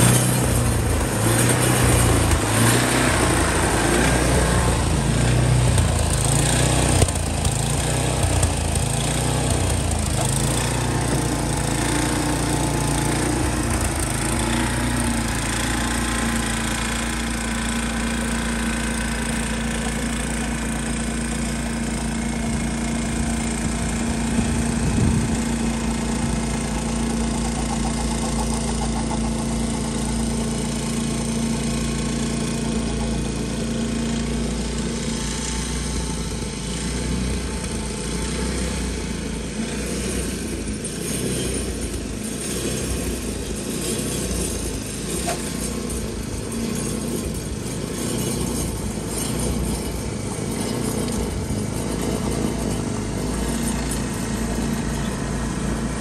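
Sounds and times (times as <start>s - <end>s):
snowblower engine running: 0.0s - 56.0s.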